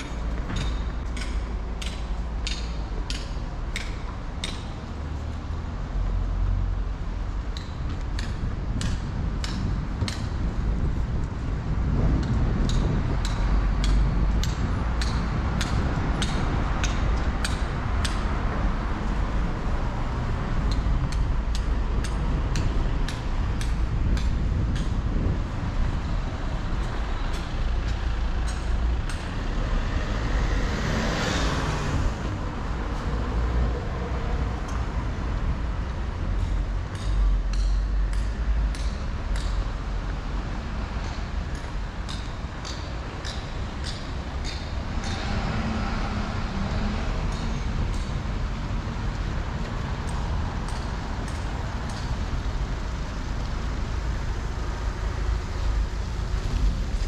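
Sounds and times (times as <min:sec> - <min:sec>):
city street traffic: 0:00.0 - 0:57.0
footsteps on pavement: 0:07.8 - 0:29.4
vehicle passing close by: 0:27.6 - 0:35.6, 0:44.8 - 0:50.5.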